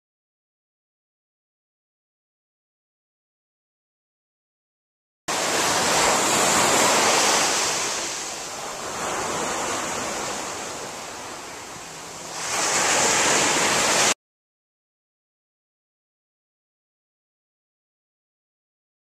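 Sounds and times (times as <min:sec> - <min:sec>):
loud even rushing noise: 0:05.3 - 0:10.8, 0:12.3 - 0:14.2.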